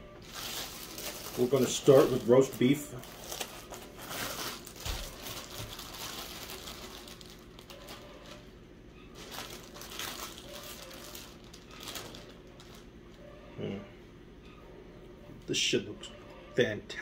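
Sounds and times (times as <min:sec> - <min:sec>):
plastic packaging crinkling: 0:00.2 - 0:13.0.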